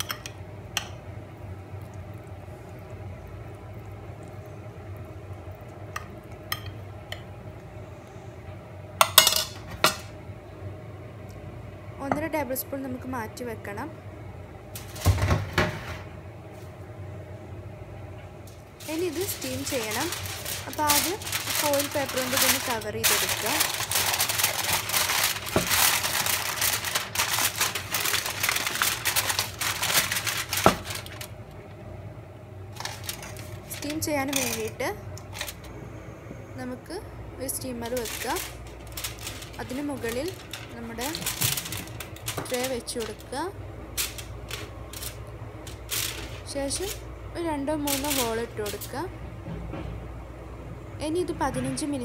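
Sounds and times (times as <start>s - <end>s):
aluminium foil crinkling: 14.7s - 15.3s, 18.5s - 31.6s, 32.7s - 35.7s, 37.4s - 49.1s.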